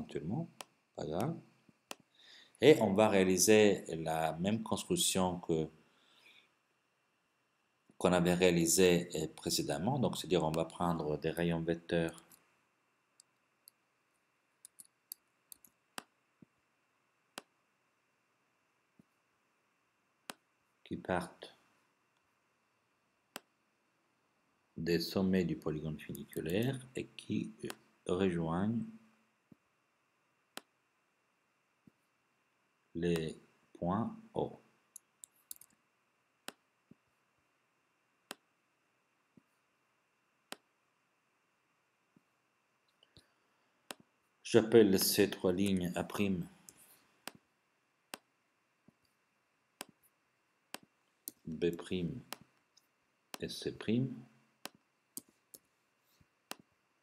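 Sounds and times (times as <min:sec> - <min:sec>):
computer mouse clicks: 0:14.6 - 0:16.5, 0:35.0 - 0:35.8, 0:49.8 - 0:50.1, 0:52.3 - 0:53.4, 0:54.6 - 0:55.6.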